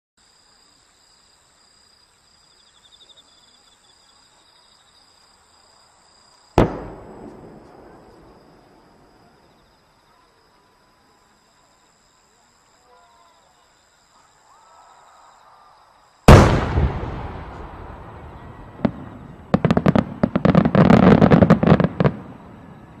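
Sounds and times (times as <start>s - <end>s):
firework mortar bang: 6.6s - 9.0s, 16.3s - 22.2s.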